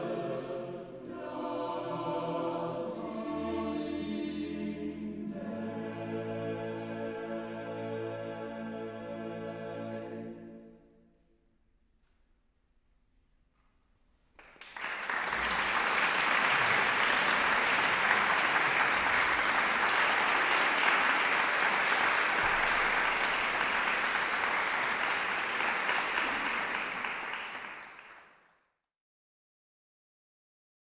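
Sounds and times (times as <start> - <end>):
audience applause: 14.4 - 28.4.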